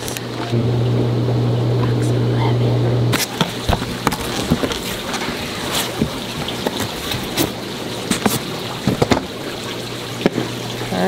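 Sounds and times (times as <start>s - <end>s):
cardboard box being opened: 3.8s - 8.4s.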